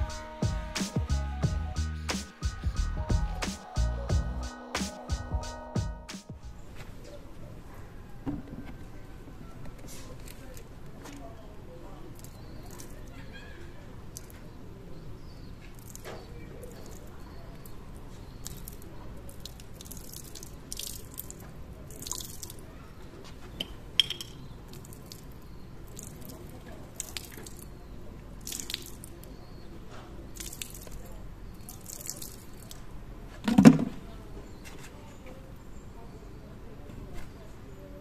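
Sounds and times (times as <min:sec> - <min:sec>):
water splashing on wooden board: 0:30.3 - 0:32.9.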